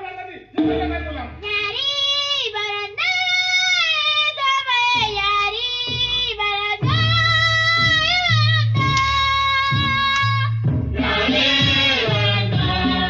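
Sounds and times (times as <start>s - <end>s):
backing music: 0.5s - 1.7s, 6.8s - 13.0s
low beats: 0.6s - 1.8s, 5.1s - 13.0s.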